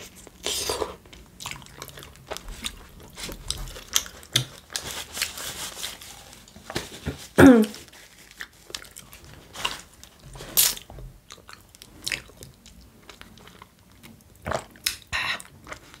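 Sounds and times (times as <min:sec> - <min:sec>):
person chewing: 0:00.0 - 0:04.8, 0:08.2 - 0:16.0.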